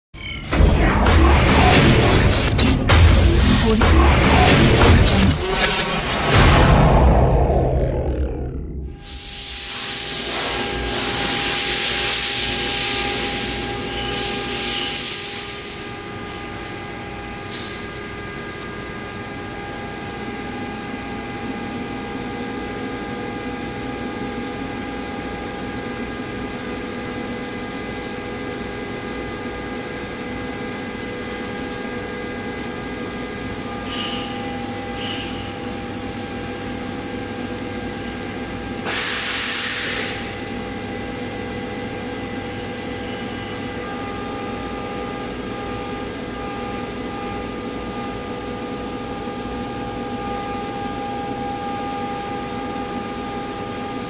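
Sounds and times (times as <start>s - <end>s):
machinery humming: 0.2s - 11.2s
whining tones: 0.3s - 10.0s
loud hiss: 9.0s - 13.5s, 38.9s - 40.2s.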